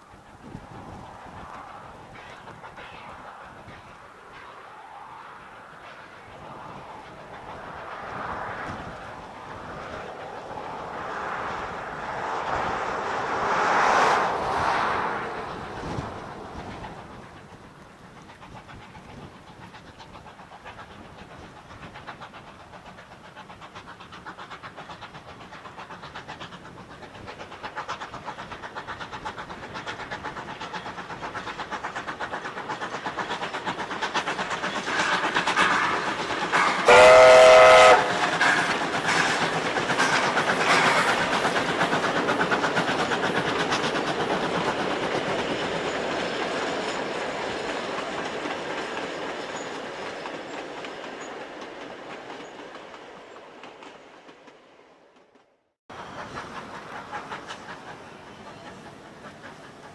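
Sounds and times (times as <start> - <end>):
clickety-clack of train wheels: 0.0 - 59.9
steam locomotive exhaust beats: 0.0 - 59.9
steam whistle blast: 36.8 - 38.2.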